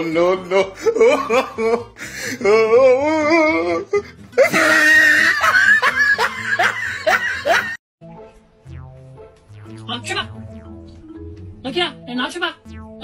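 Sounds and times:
music: 0.0 - 13.0
person laughing: 4.4 - 7.8.

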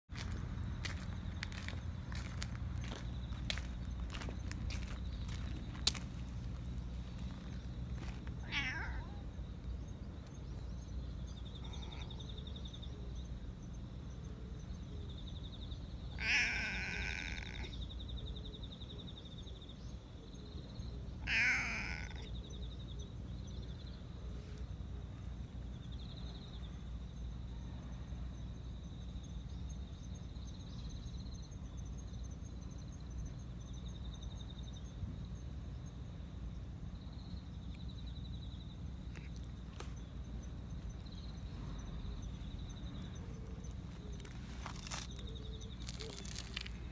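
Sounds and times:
cat meowing: 8.4 - 9.3, 16.2 - 17.7, 21.2 - 22.3.

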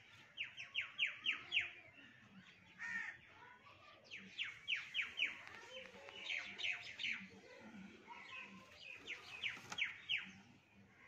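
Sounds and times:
bird chirping: 4.1 - 7.3, 8.3 - 10.5.

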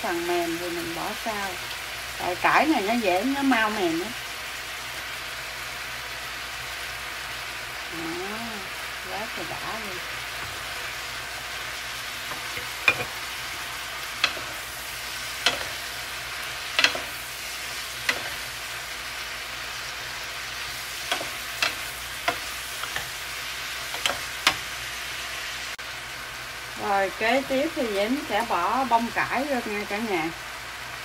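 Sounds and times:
stir-fry sizzling in a pan: 0.0 - 31.0
wooden spatula clacking on pan: 15.4 - 15.8, 16.7 - 17.2.

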